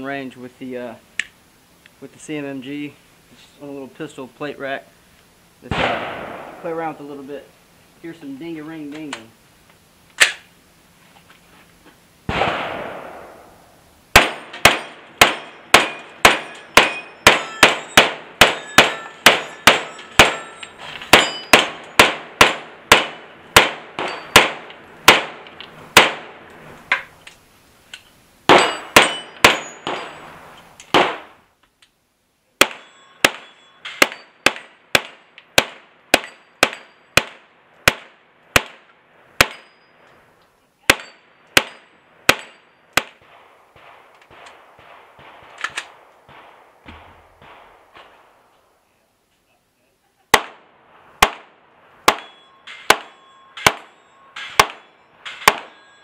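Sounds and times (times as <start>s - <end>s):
carbine gunshots: 5.7s - 6.9s, 12.3s - 13.5s, 14.1s - 26.4s, 28.5s - 30.2s, 30.9s - 31.4s, 40.9s - 48.3s, 50.3s - 55.8s
steel plates ringing: 14.4s - 22.2s, 24.0s - 24.6s, 28.5s - 30.5s, 32.6s - 34.5s, 39.4s - 40.1s, 41.0s - 42.9s, 52.1s - 56.0s.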